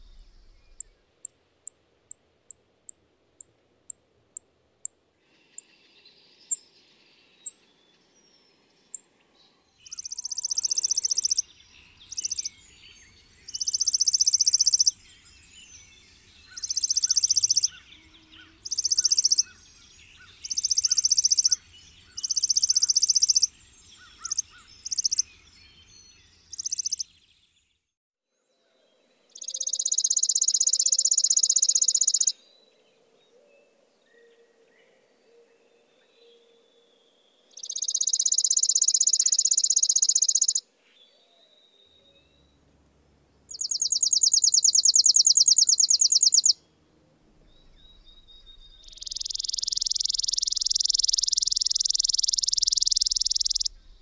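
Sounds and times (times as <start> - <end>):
faint bird twittering: 0.0 - 1.0, 5.2 - 27.5, 29.3 - 42.6, 43.5 - 46.6, 47.4 - 54.0
bird dry rapid trills: 37.8 - 40.6, 43.5 - 46.6, 48.5 - 54.0.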